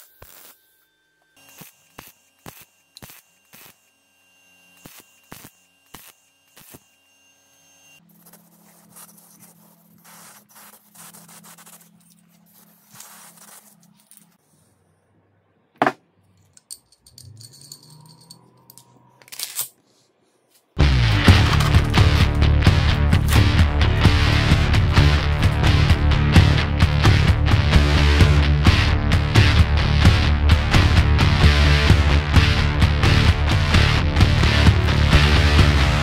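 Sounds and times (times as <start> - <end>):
welding arc crackle: 0.0 - 0.6, 1.4 - 3.9, 4.7 - 6.9
spray paint hissing: 8.3 - 11.9
metal bolts clinking: 16.5 - 19.8.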